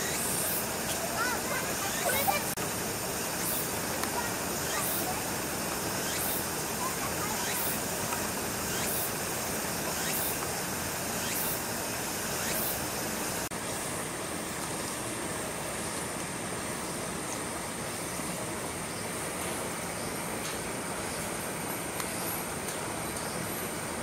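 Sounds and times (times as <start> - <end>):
heavy rain hiss: 0.0 - 24.0
high rising chirp: 4.5 - 5.2, 5.8 - 7.9, 8.6 - 9.2, 9.9 - 10.4, 11.1 - 11.7, 12.3 - 13.0.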